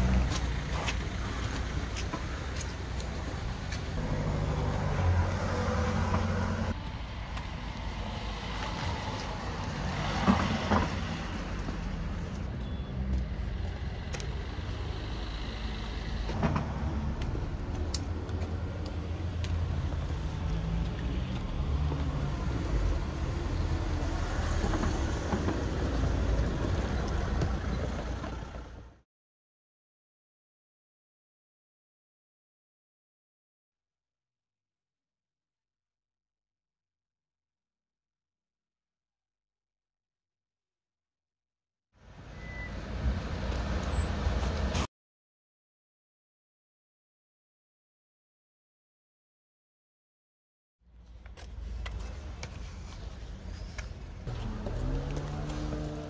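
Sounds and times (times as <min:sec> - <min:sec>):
road traffic engine rumble: 0:00.0 - 0:29.0, 0:42.0 - 0:44.9, 0:50.9 - 0:56.0.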